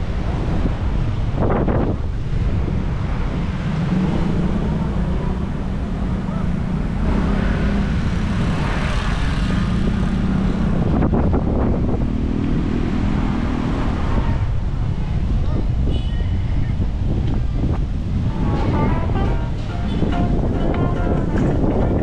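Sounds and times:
road traffic engines humming: 0.0 - 22.0
wind buffeting microphone: 0.0 - 22.0.

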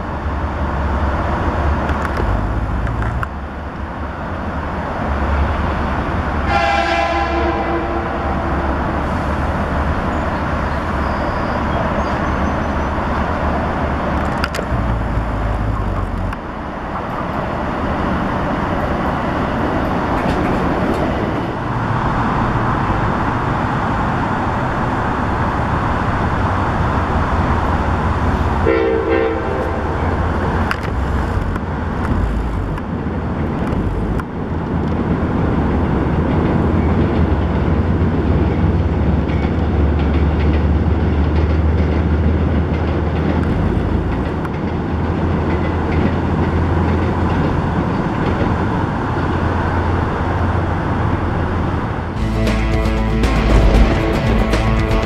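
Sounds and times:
train wheels rumbling on rail: 0.0 - 55.0
train horn blast: 6.4 - 8.6, 28.6 - 30.2.

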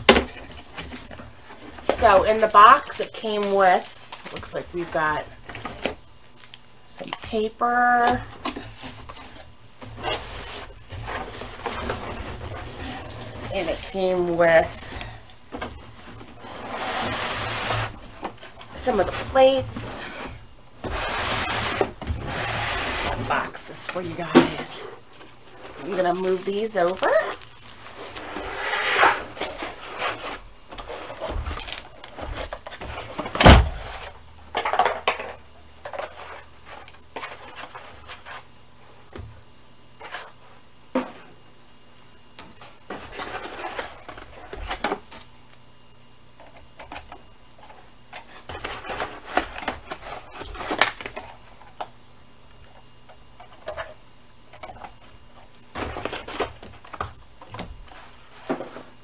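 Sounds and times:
paper packaging rustling: 0.0 - 15.1, 15.7 - 38.5.

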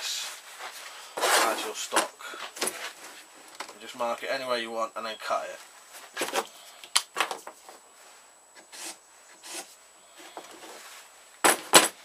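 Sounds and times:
scratchy rubs on workbench: 0.6 - 1.7, 8.6 - 9.8.

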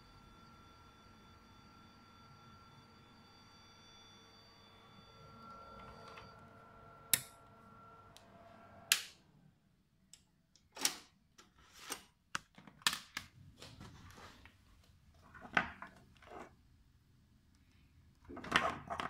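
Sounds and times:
electronic whine: 0.0 - 8.9.

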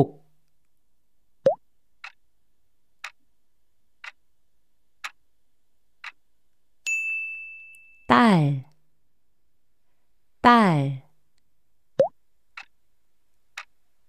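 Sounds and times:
clock ticks: 2.0 - 2.2, 3.0 - 3.2, 4.0 - 4.2, 5.0 - 5.2, 6.0 - 6.2, 12.0 - 12.8, 13.5 - 13.8
bright ding: 6.9 - 8.1.

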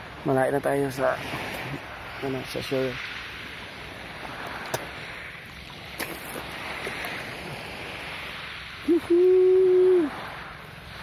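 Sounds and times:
water lapping around swimmer: 3.0 - 11.0.

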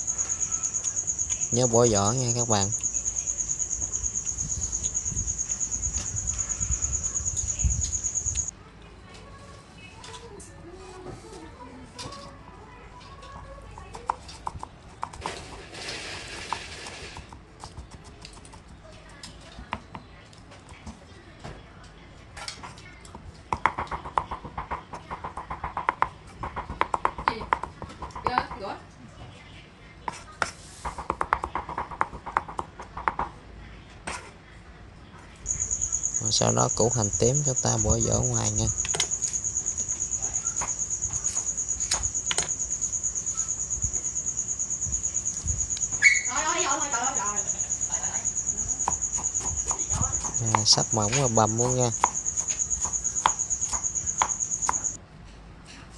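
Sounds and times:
cricket trilling: 0.0 - 8.5, 35.4 - 55.0
knife chopping on wooden board: 23.6 - 28.6, 48.8 - 54.9.

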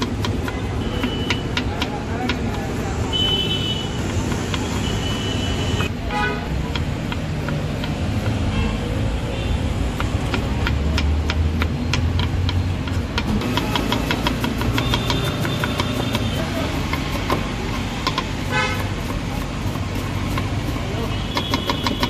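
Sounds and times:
knife chopping on wooden board: 0.0 - 3.1, 3.8 - 8.8, 9.6 - 22.0
street traffic rumble: 0.0 - 22.0
car horn toots: 18.5 - 18.9.

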